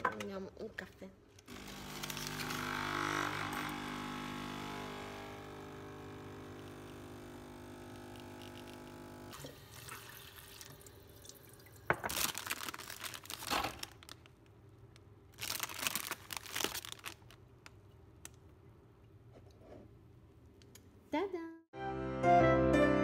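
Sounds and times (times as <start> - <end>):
espresso machine pump humming: 1.5 - 9.5
plastic bag crinkling: 12.0 - 14.6, 15.3 - 18.4.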